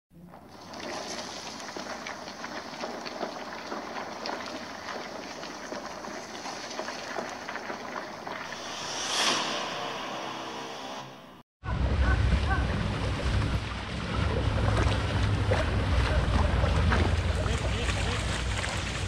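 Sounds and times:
rising whoosh: 8.4s - 11.5s.

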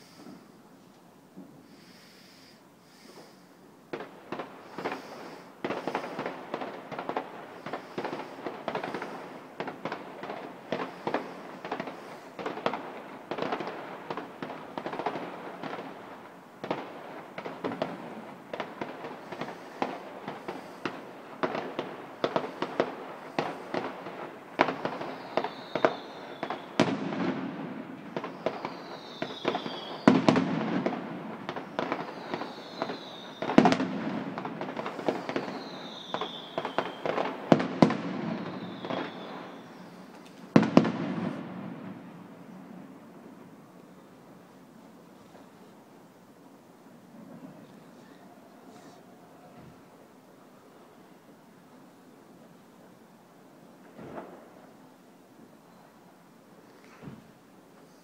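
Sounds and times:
fireworks bangs and crackles: 0.0s - 0.6s, 1.3s - 58.0s
fireworks whistles: 0.0s - 0.6s, 1.6s - 44.5s
fireworks booms: 1.3s - 45.8s, 53.7s - 55.0s, 56.6s - 58.0s.

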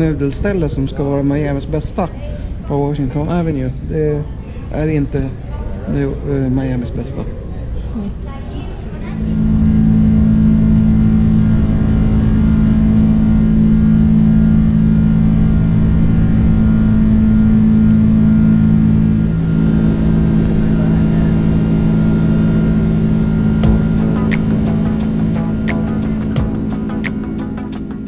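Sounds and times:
jet engines droning: 9.4s - 28.0s.

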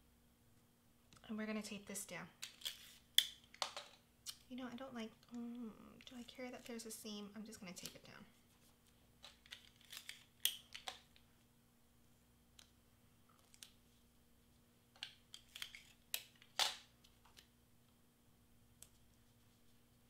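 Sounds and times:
tape ripping and crackling: 2.4s - 3.4s, 9.2s - 11.1s.

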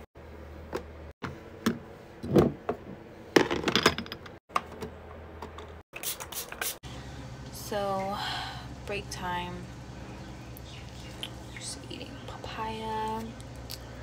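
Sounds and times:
low hum: 6.8s - 14.0s.

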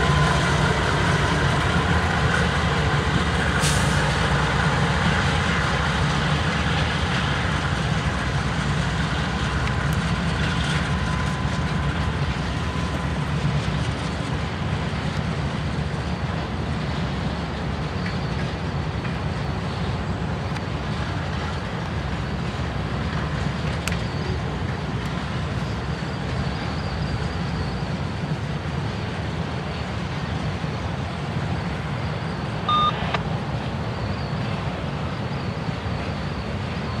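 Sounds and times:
freight train rumbling past: 0.0s - 37.0s
short high beep: 32.7s - 33.2s.

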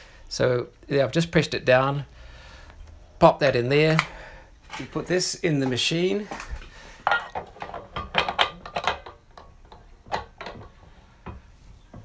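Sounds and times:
metal filter holder clinking: 7.0s - 10.8s.

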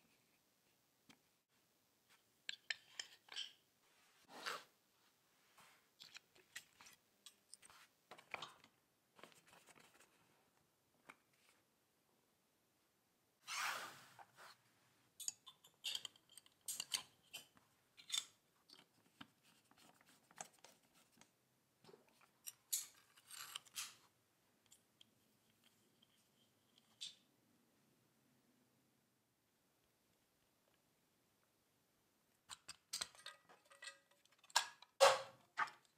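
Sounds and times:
small metal parts clicking: 15.2s - 18.3s, 32.5s - 34.9s.

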